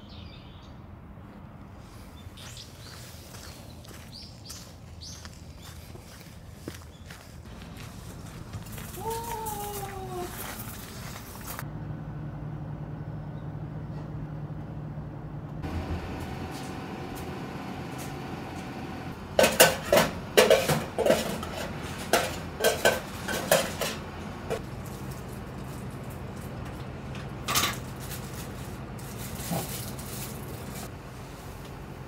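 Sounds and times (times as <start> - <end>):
metal utensil clinking on steel pans: 19.4 - 24.0.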